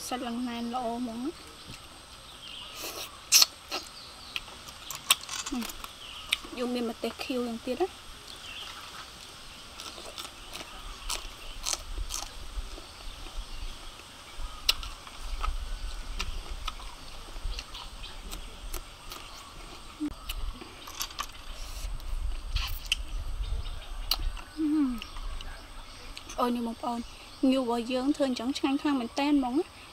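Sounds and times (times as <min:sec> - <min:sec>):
low rumble: 0:10.4 - 0:27.2.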